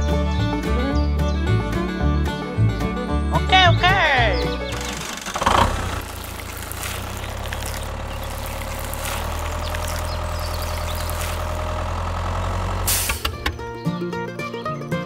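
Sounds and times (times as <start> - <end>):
tractor engine running: 4.2 - 14.8.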